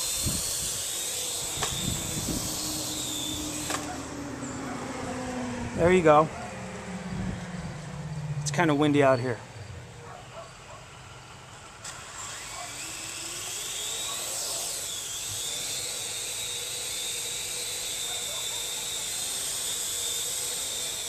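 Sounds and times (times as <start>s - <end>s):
drone rotors whining: 0.0s - 21.0s.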